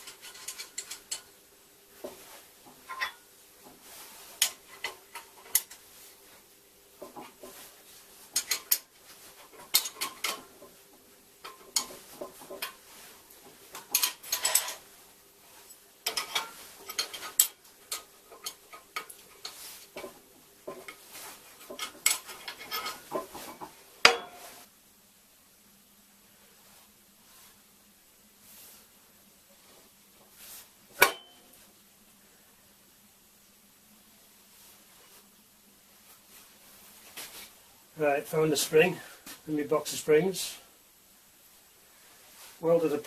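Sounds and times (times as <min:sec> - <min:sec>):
spanners clinking on metal: 0:00.0 - 0:01.3, 0:02.9 - 0:03.2, 0:08.3 - 0:08.9, 0:09.5 - 0:10.6, 0:11.4 - 0:12.8, 0:13.8 - 0:14.8, 0:16.0 - 0:20.1, 0:21.6 - 0:24.4
sharp metal clack: 0:24.0 - 0:24.5, 0:31.0 - 0:31.5.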